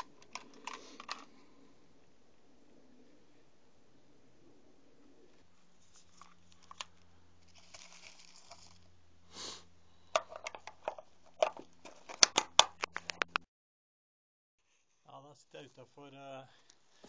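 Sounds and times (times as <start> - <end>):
rustling: 5.1 - 8.9
plastic box clicks and snaps: 10.2 - 13.4.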